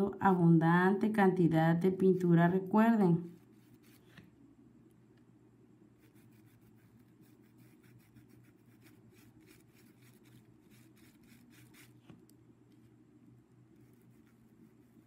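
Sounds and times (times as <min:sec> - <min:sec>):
low steady hum: 0:00.0 - 0:15.0
paintbrush scratching on fabric: 0:03.2 - 0:04.2, 0:06.0 - 0:12.1, 0:13.7 - 0:15.0.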